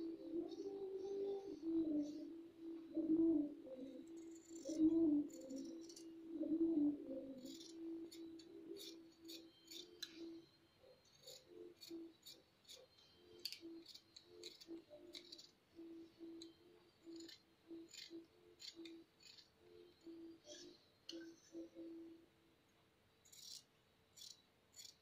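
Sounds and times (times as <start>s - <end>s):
scissors snipping fabric: 13.4s - 15.5s.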